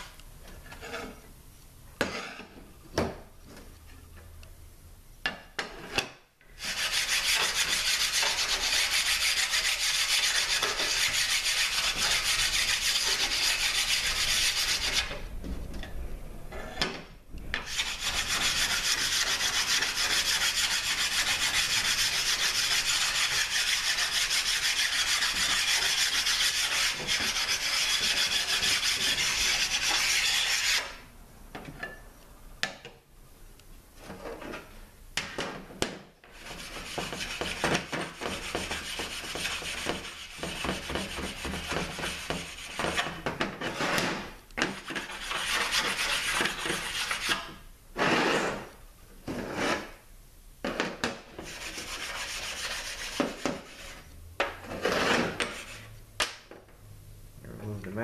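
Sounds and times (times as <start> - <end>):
abrasive stone rasping on metal: 0.7 - 1.2, 6.6 - 15.2, 17.6 - 31.0, 36.3 - 47.4, 51.4 - 54.0, 54.6 - 55.9.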